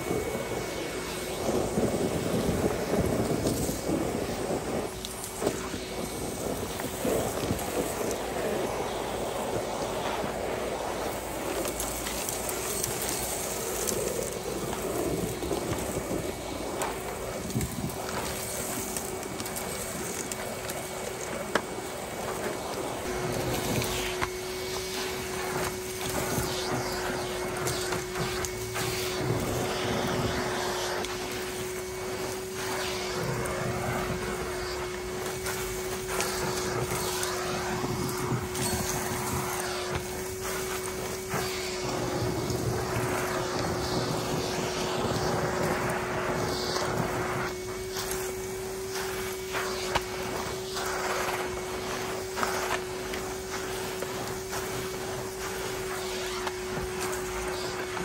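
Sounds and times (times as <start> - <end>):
vacuum cleaner motor whine: 0.0 - 58.0
vacuum floor tool on rug: 0.0 - 58.0.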